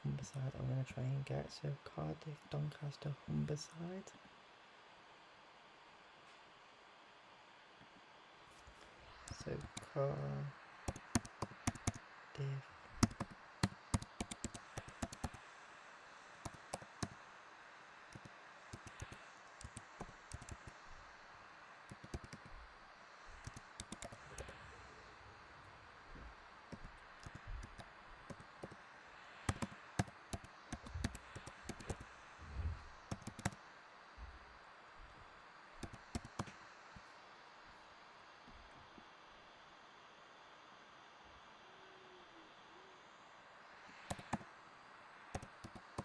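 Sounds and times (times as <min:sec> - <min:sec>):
typing on keyboard: 0:10.9 - 0:12.0, 0:13.0 - 0:15.4, 0:16.4 - 0:17.2, 0:18.1 - 0:20.8, 0:21.9 - 0:22.5, 0:23.4 - 0:24.6, 0:26.7 - 0:28.8, 0:29.5 - 0:32.0, 0:33.1 - 0:33.6, 0:35.8 - 0:36.5, 0:44.1 - 0:44.4, 0:45.3 - 0:46.0.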